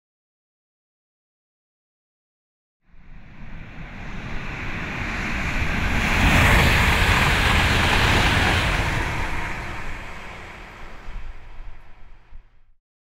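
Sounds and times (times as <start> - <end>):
rushing noise with deep rumble: 2.9 - 12.8.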